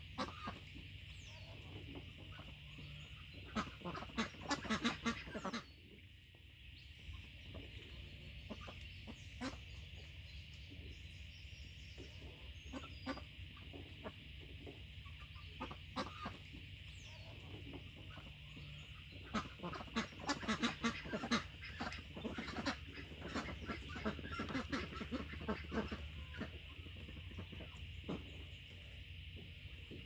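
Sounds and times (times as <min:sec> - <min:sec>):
hens clucking: 0:00.0 - 0:05.6, 0:12.0 - 0:30.0.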